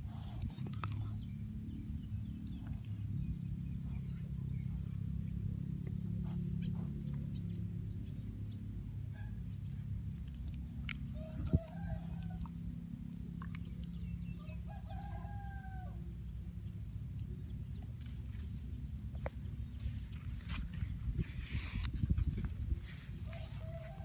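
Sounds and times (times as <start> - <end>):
steady low rumble: 0.0 - 24.0
rooster crowing: 11.1 - 12.5, 14.4 - 16.1, 23.2 - 24.0.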